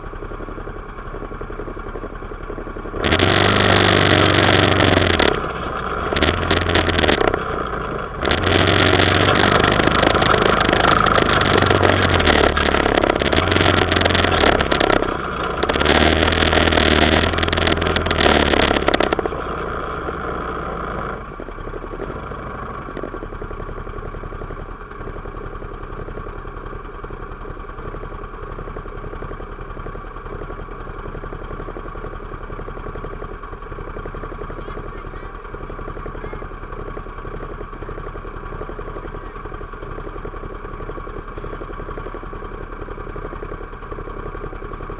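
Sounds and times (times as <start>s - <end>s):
off-road vehicle engine: 0.0s - 44.9s.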